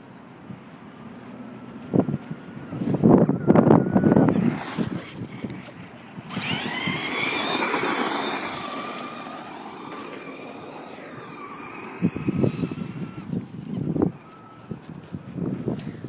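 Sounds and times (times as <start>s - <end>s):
electric toy truck motor whining: 2.5s - 14.8s.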